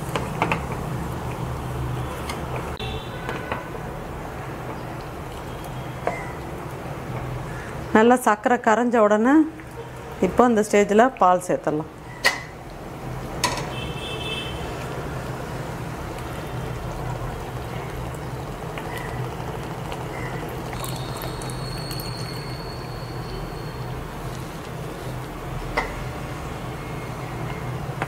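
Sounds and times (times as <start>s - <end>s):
pot boiling: 0.0s - 8.6s, 9.4s - 28.0s
milk pouring: 16.2s - 23.0s.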